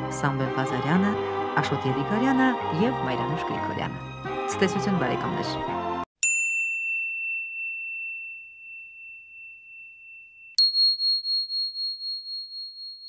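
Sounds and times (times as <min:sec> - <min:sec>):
bell chime tones: 0:06.2 - 0:13.0.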